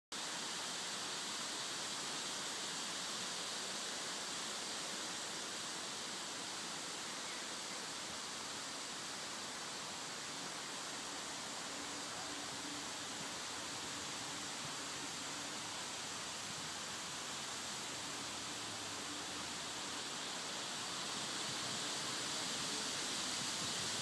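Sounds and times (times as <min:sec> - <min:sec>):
wind rustling leaves: 0:00.2 - 0:24.0.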